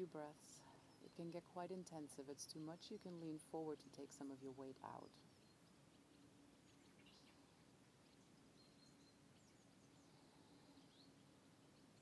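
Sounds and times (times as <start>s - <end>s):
faint outdoor ambience: 0.0s - 12.0s.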